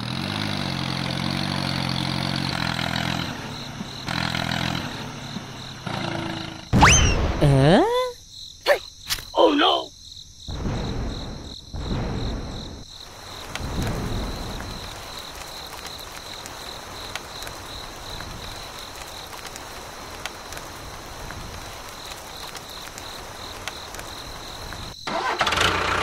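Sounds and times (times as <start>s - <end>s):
rain falling: 0.0s - 6.2s, 12.9s - 26.0s
insects chirring: 0.5s - 25.5s.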